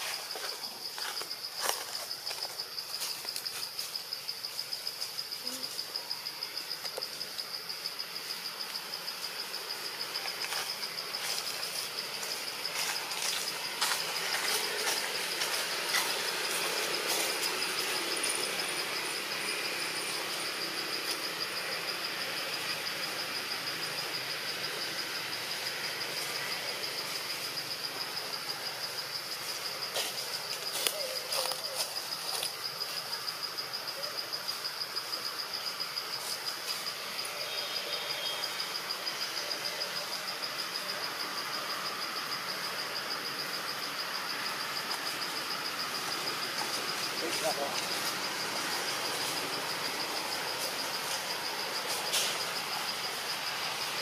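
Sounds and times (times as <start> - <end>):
insects buzzing: 0.0 - 54.0
rustling hiss: 0.0 - 54.0.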